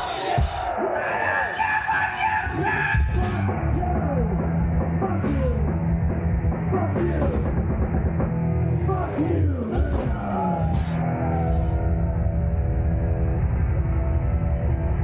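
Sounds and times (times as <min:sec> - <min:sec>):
thrash metal band playing live: 0:02.1 - 0:15.0.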